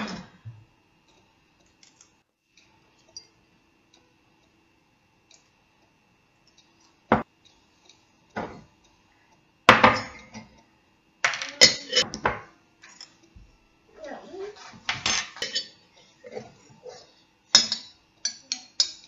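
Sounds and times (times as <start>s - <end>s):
faint steady hum: 0.0s - 19.0s.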